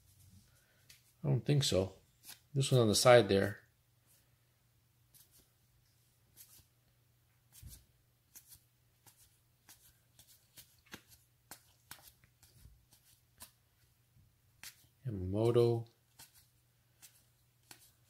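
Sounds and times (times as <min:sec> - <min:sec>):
cards flicking and sliding: 0:02.2 - 0:02.7, 0:07.5 - 0:13.6, 0:14.6 - 0:15.0, 0:16.1 - 0:18.0.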